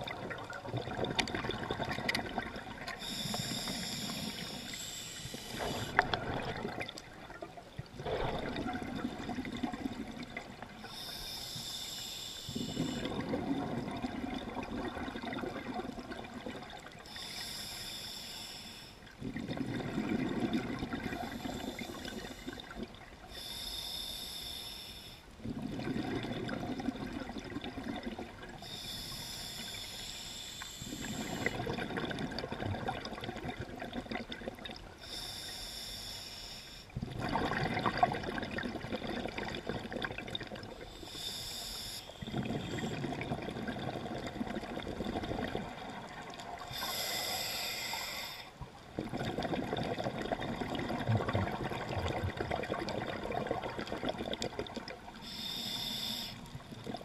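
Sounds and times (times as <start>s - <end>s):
exhaled bubbles gurgling: 0.0s - 17.6s, 19.0s - 23.6s, 25.4s - 29.9s, 30.8s - 35.2s, 37.0s - 57.0s
regulator air hiss: 3.0s - 6.0s, 10.9s - 13.0s, 17.1s - 19.0s, 23.3s - 25.2s, 28.6s - 31.5s, 35.0s - 36.9s, 41.0s - 42.9s, 46.7s - 48.6s, 55.2s - 56.6s.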